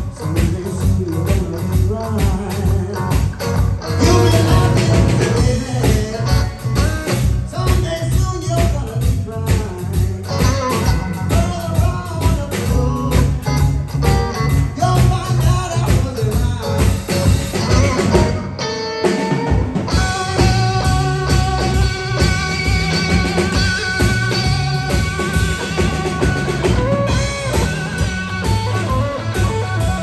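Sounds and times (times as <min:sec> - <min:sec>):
lead electric guitar long notes: 0:00.0 - 0:30.0
rock band playing live: 0:00.0 - 0:30.0.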